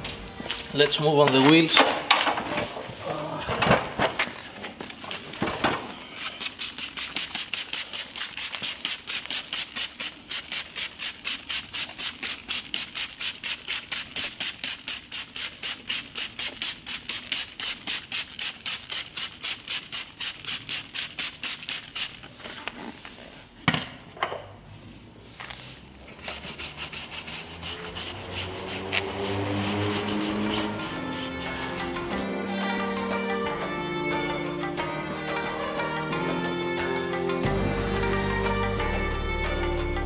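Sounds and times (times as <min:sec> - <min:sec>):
spray bottle squirts: 0:06.0 - 0:22.3, 0:26.2 - 0:32.2.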